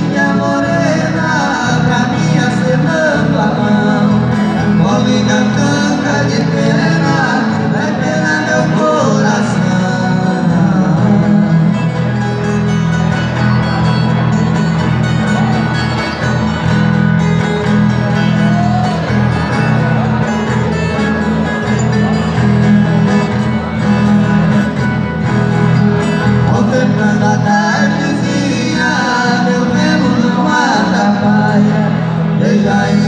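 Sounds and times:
two men singing: 0.0s - 12.0s, 26.2s - 33.0s
acoustic guitar and viola: 0.0s - 33.0s.

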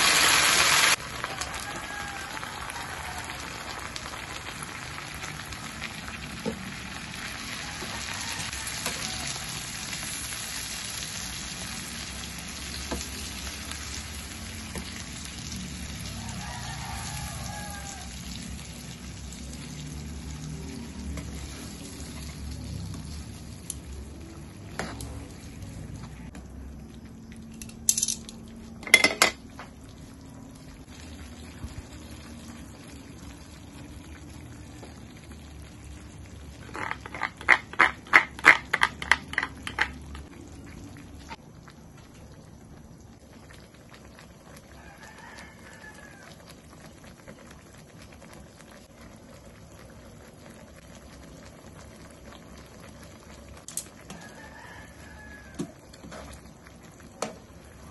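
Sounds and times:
sauce simmering in a pan: 0.0s - 27.5s, 29.4s - 57.9s
metal tongs clicking on pan: 53.7s - 53.9s.

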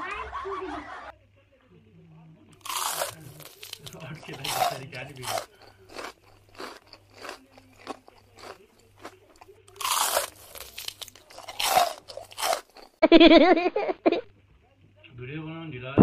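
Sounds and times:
person speaking: 2.6s - 12.6s
crisp shells crunching: 2.6s - 13.0s.

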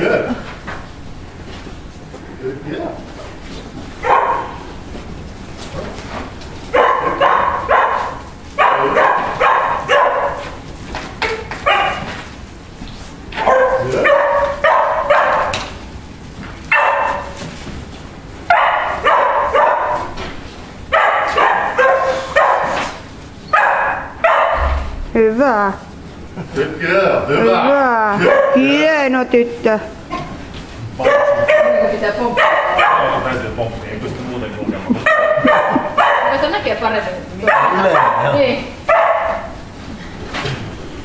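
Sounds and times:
dog barking: 4.0s - 4.6s, 6.7s - 10.6s, 11.6s - 12.1s, 13.4s - 15.6s, 16.7s - 17.4s, 18.5s - 20.2s, 20.9s - 24.9s, 28.2s - 28.8s, 31.0s - 33.3s, 35.0s - 36.5s, 37.4s - 39.6s.

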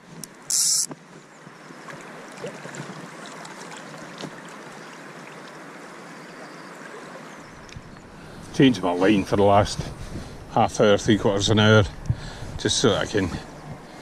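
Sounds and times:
flowing river water: 0.0s - 14.0s
loud high hiss: 0.5s - 0.9s.

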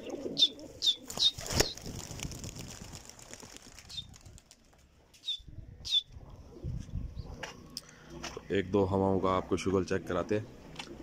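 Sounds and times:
pigeons flapping wings: 1.0s - 5.0s.

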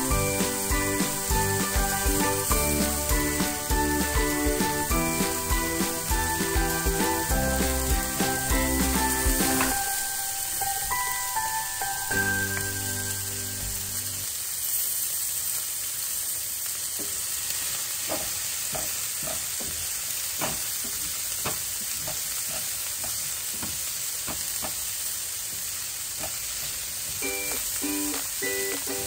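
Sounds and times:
music: 0.0s - 14.2s, 27.2s - 29.0s
food sizzling in oil: 0.0s - 29.0s.

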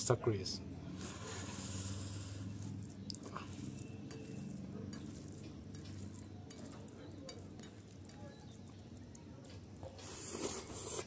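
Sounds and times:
fingers squishing food: 2.4s - 11.0s.

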